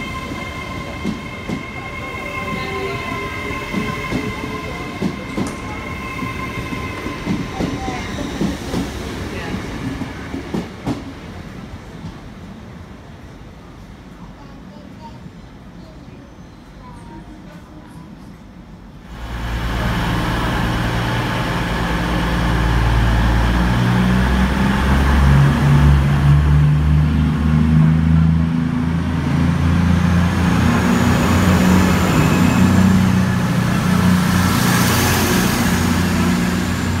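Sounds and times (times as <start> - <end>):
diesel train engine drone: 19.0 - 37.0
rushing air and wheel noise: 19.1 - 27.2.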